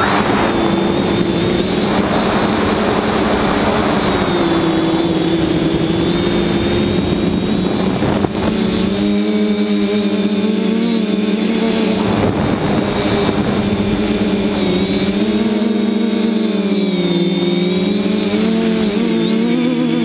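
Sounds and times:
wind rush on microphone: 0.0 - 9.3, 11.7 - 15.9
drone propellers whirring: 0.0 - 20.0.

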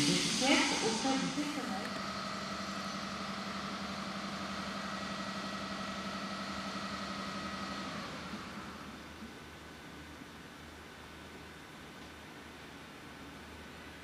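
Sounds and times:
electric locomotive humming: 0.0 - 14.0
station rumble: 0.0 - 14.0.

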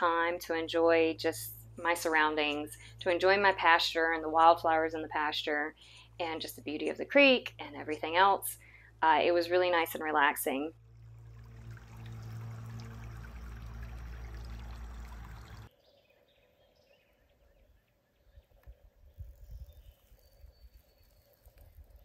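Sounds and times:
creek flowing and trickling: 9.9 - 15.7
low rumbles: 10.7 - 15.7.

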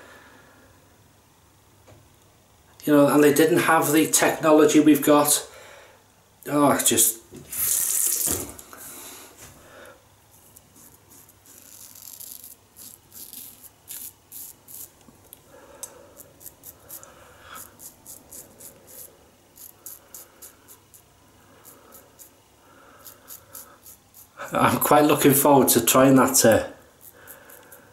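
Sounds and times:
razor scraping stubble: 10.3 - 15.4, 16.1 - 25.4, 26.0 - 27.9.

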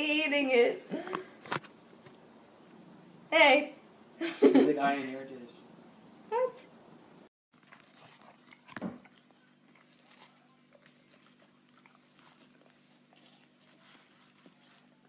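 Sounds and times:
dog chewing wet crunching: 7.5 - 15.0.

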